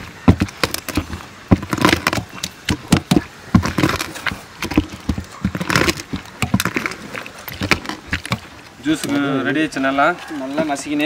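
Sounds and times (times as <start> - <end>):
pestle pounding in a steel bowl: 0.0 - 8.5.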